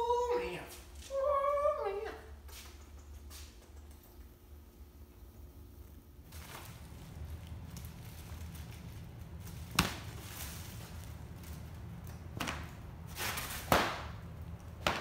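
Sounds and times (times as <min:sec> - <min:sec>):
fabric rustle: 0:06.2 - 0:12.0.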